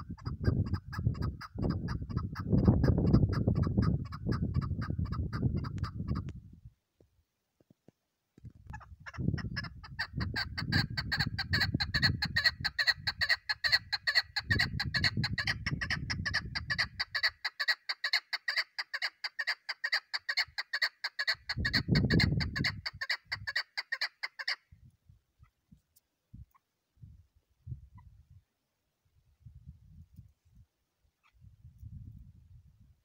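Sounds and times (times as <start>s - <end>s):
partridge calling chuck notes: 8.7s - 24.6s.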